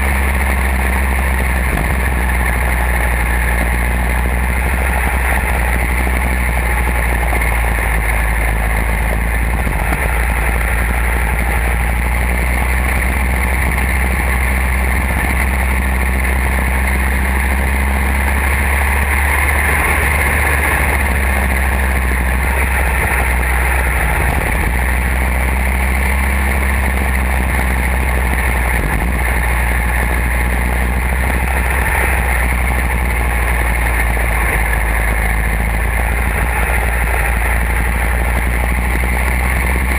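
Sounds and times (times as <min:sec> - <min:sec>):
go-kart engine running: 0:00.0 - 0:39.9.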